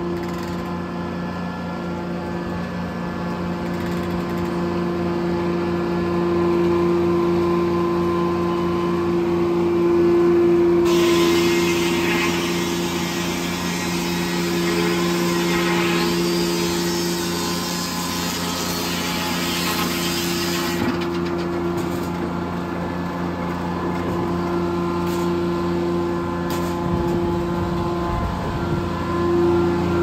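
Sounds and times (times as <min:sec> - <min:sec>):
sawmill machinery humming: 0:00.0 - 0:30.0
saw blade cutting log: 0:10.9 - 0:21.0.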